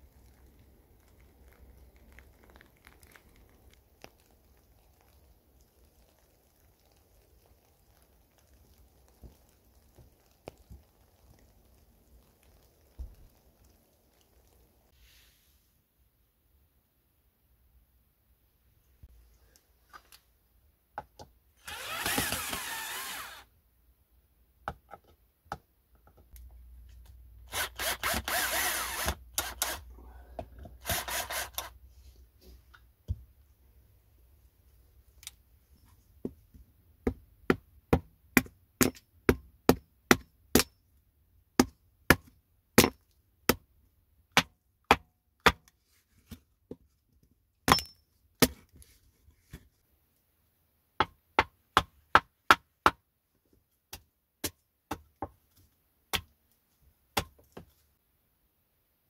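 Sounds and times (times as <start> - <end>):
cordless drill running: 21.6 - 23.4, 27.5 - 29.8, 30.8 - 31.7.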